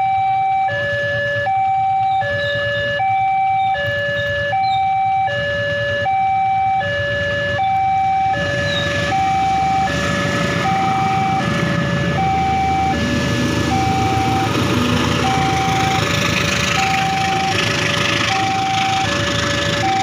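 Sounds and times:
level crossing two-tone alarm: 0:00.0 - 0:20.0
diesel train rumbling past: 0:08.1 - 0:20.0.

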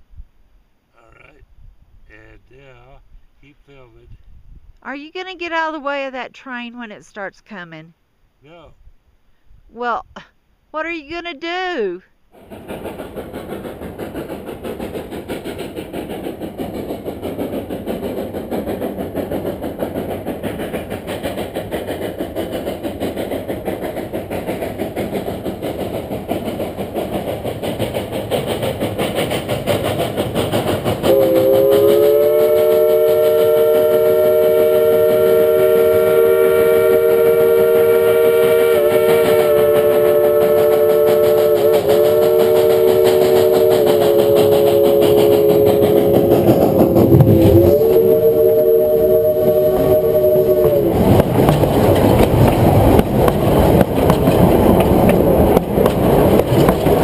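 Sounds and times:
steam locomotive exhaust: 0:12.3 - 0:57.0
steam whistle blast: 0:31.0 - 0:51.2.

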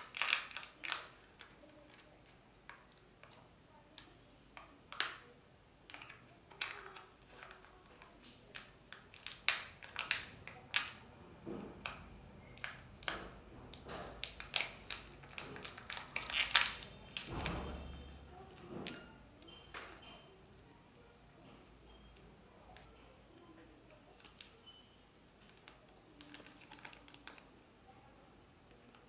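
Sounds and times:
wrapper crinkling: 0:00.0 - 0:03.4, 0:05.9 - 0:11.0, 0:14.2 - 0:18.4, 0:25.4 - 0:27.5.

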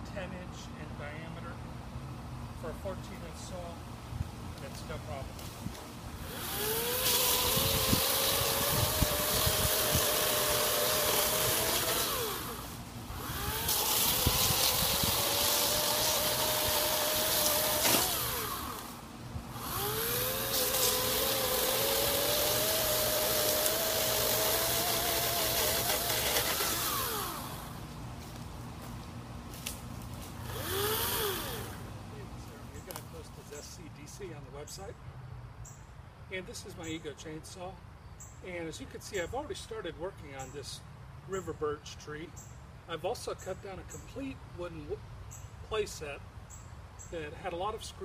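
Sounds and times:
electric chainsaw cutting logs: 0:06.1 - 0:32.0.

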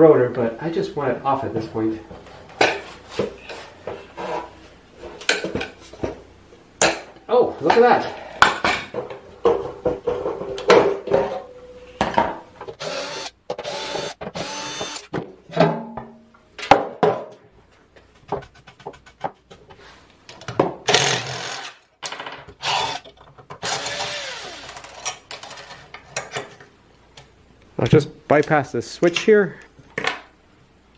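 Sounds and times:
cordless drill driving screws: 0:12.8 - 0:15.1, 0:20.9 - 0:21.8, 0:22.6 - 0:25.0.

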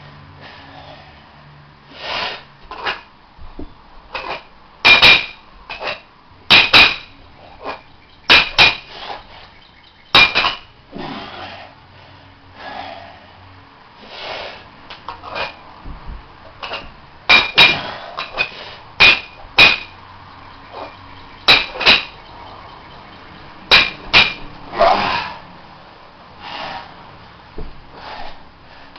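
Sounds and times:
metal weight plates clanking: 0:21.5 - 0:22.2.

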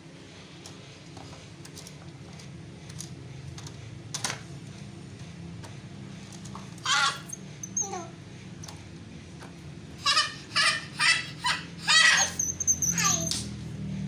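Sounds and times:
high-pitched cry: 0:06.8 - 0:08.2, 0:10.0 - 0:13.5
toy car motor whirring: 0:11.5 - 0:13.6
falling squeal: 0:11.9 - 0:13.6.

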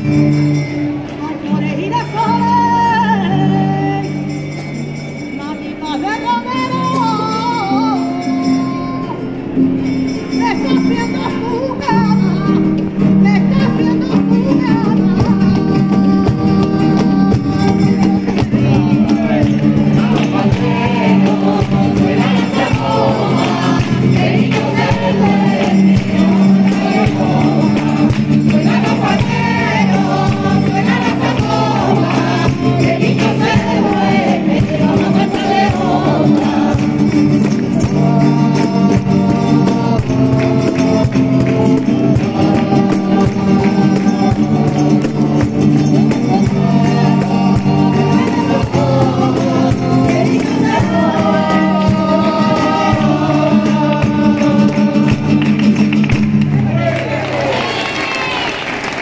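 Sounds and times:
strummed acoustic guitars: 0:00.0 - 0:58.2
group of voices singing: 0:13.6 - 0:57.3
rhythmic hand clapping: 0:14.7 - 0:59.0.

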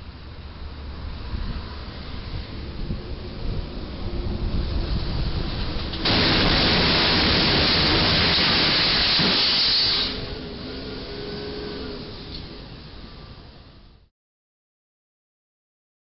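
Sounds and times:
street traffic: 0:00.0 - 0:14.1
truck crashing into railway bridge: 0:06.0 - 0:10.4.

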